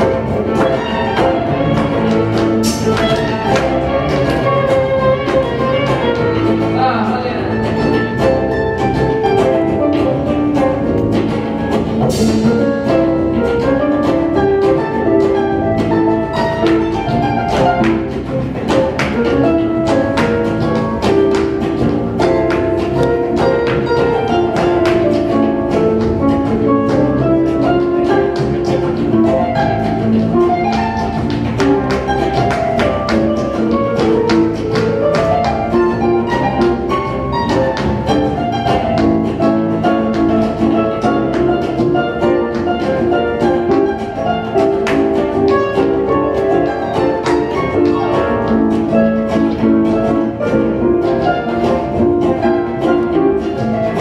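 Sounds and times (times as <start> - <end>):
fusion ensemble music: 0.0 - 54.0
sharp percussive strokes: 0.0 - 54.0.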